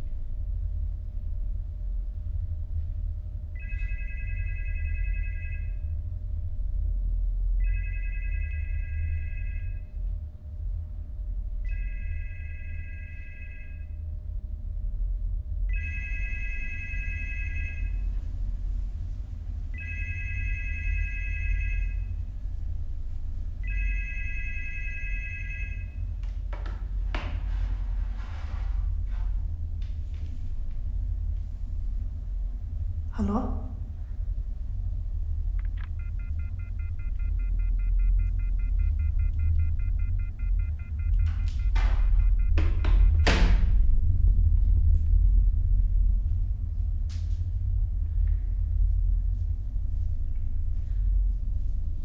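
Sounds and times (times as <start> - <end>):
low rumble: 0.0 - 52.0
telephone electronic ring: 3.6 - 5.8, 7.6 - 9.8, 11.7 - 13.8, 15.7 - 18.1, 19.7 - 22.1, 23.6 - 26.0.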